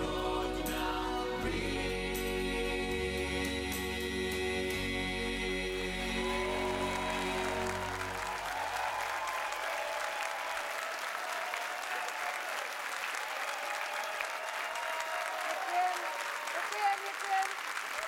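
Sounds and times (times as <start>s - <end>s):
audience applauding: 6.2s - 18.0s.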